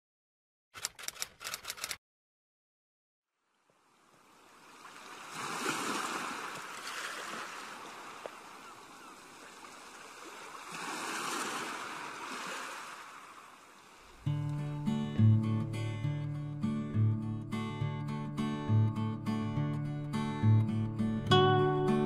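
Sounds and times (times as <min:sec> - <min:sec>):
waves washing onto beach: 0:04.1 - 0:14.3.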